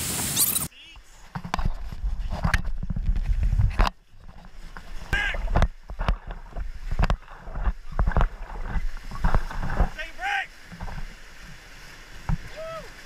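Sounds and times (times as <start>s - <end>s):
rushing water rumble: 0.0s - 13.0s
paddles splashing and knocking: 1.2s - 13.0s
wind on microphone: 1.4s - 10.1s
person shouting: 5.2s - 5.4s, 10.0s - 10.5s, 12.5s - 12.9s.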